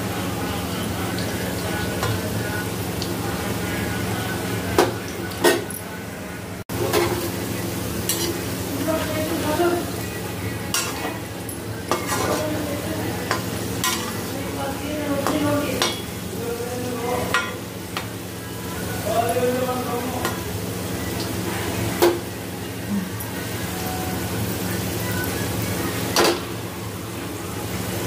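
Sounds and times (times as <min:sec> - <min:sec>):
potatoes sizzling in oil: 0:00.0 - 0:28.0
metal skimmer scraping a pan: 0:11.9 - 0:14.3.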